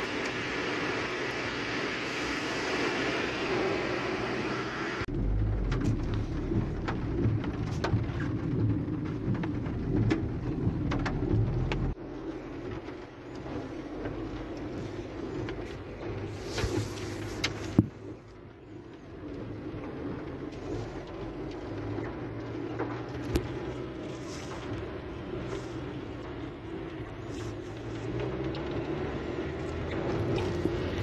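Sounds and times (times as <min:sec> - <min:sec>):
road and engine rumble: 0:00.0 - 0:31.0
hail and rain tapping on car: 0:05.2 - 0:24.0.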